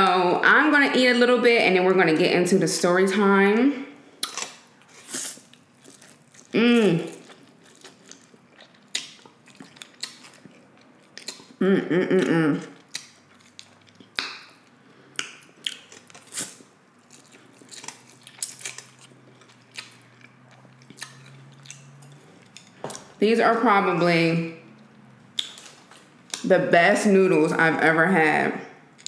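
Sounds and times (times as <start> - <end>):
person humming mmm: 6.6 - 7.2, 11.6 - 12.8.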